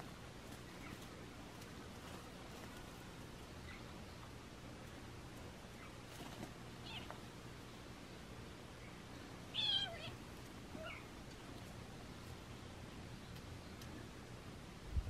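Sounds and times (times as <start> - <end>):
faint kitten call: 9.5 - 11.1.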